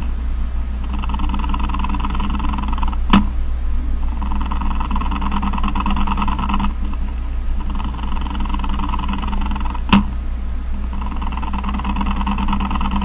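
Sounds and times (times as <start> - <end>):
cricket trilling: 0.0 - 3.2, 4.0 - 10.0, 10.8 - 13.0
low electrical hum: 0.0 - 13.0
sharp click: 2.8 - 3.4, 9.9 - 10.2.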